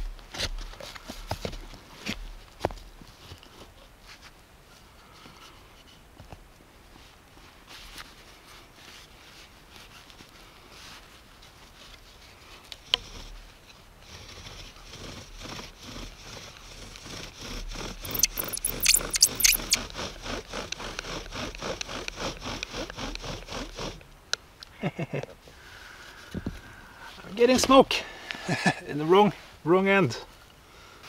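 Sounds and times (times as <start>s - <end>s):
high squeaks: 18.0s - 19.8s
bow drill scraping: 18.1s - 19.8s
sharp click: 18.1s - 19.8s.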